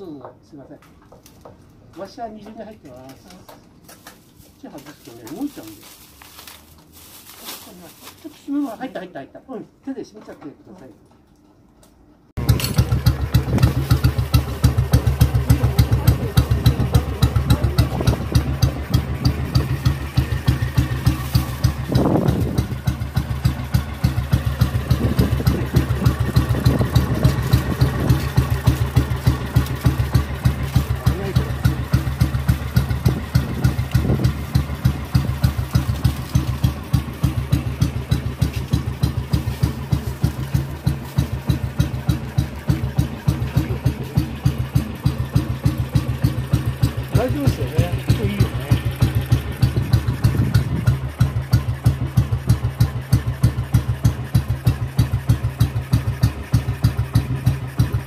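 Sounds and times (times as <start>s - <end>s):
motorcycle engine idling: 12.4s - 58.0s.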